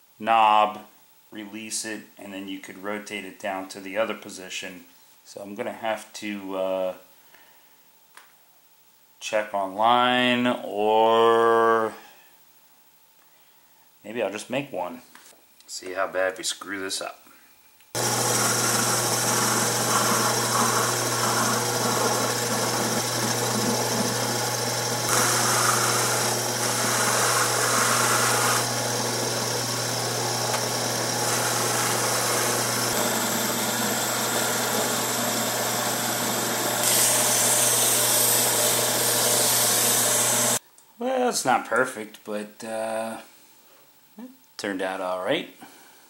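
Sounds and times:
abrasive paper rubbing spinning metal: 18.0 - 40.6
metal lathe humming: 18.0 - 40.6.

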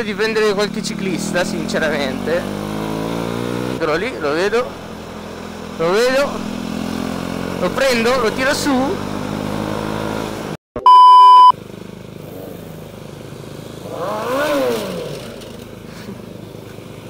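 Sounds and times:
motorcycle engine running: 0.0 - 10.6, 11.6 - 17.0
censor bleep: 10.8 - 11.6.

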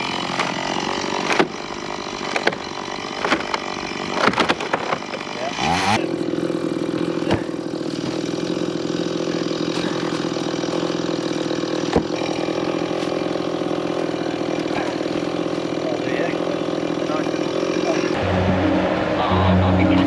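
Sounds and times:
engine running steadily: 0.0 - 20.0
sharp knocks: 11.9 - 12.3.

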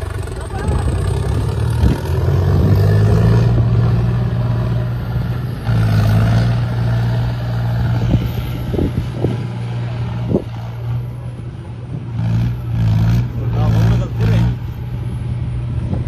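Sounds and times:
diesel tractor engine droning: 0.0 - 16.0.

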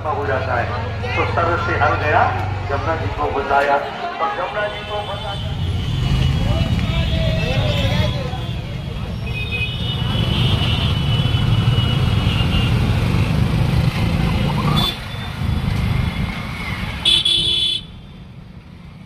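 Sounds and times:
vehicle engines rumbling: 0.0 - 19.0
car horns honking: 17.0 - 18.0.

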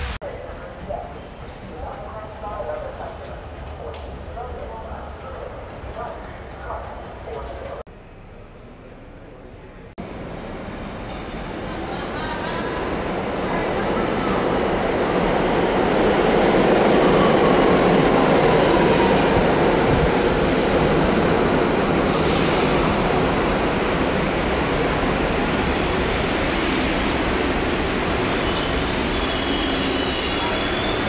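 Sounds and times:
high-pitched brake squeals: 21.5 - 22.1, 28.4 - 31.0.

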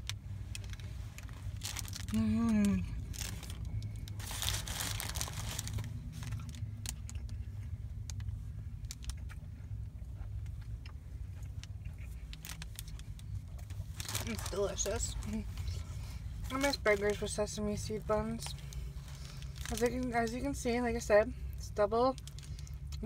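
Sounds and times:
low rumble: 0.0 - 23.0
paper wrapper crinkling: 0.5 - 7.2, 12.3 - 15.7, 18.4 - 20.4
person chewing: 1.4 - 14.0
person humming: 2.1 - 2.9.

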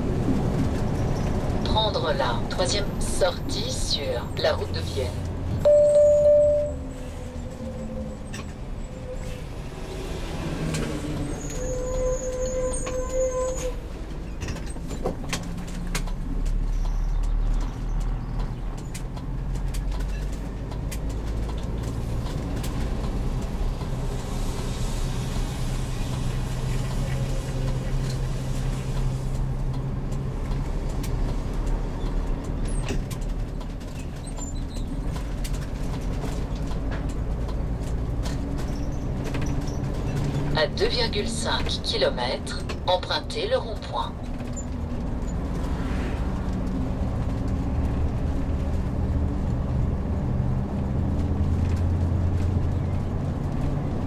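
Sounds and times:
engine drone and road noise: 0.0 - 54.0
short loud tone: 5.7 - 6.9.

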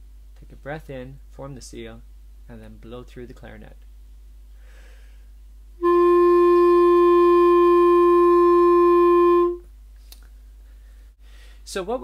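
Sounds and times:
clarinet sustained note: 5.8 - 9.7.

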